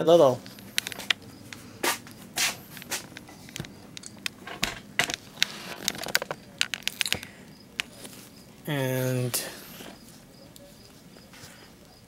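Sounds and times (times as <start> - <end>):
camera handling noise: 0.5 - 1.6.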